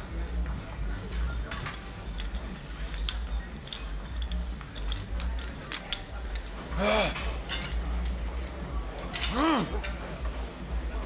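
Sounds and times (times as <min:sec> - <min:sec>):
gym weights clinking: 0:02.0 - 0:07.9.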